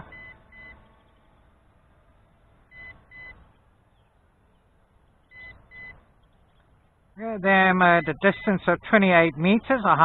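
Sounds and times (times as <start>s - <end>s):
radio controller beeping: 0.0s - 0.9s, 2.7s - 3.4s, 5.2s - 6.0s, 7.5s - 8.9s.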